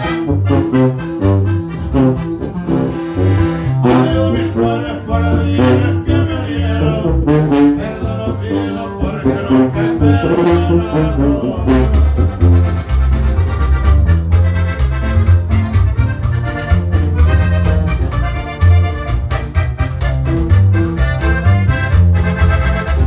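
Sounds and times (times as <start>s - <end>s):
button accordion: 0.0s - 23.0s
guitar: 0.0s - 23.0s
sousaphone bass line: 0.0s - 23.0s
upright bass: 0.0s - 23.0s
men singing: 3.8s - 12.0s.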